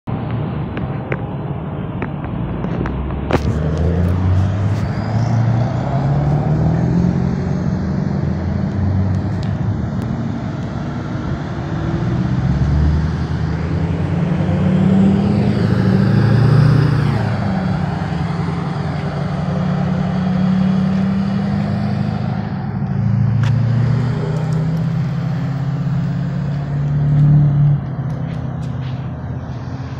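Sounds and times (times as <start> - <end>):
truck engines revving through gears: 2.5 - 29.9.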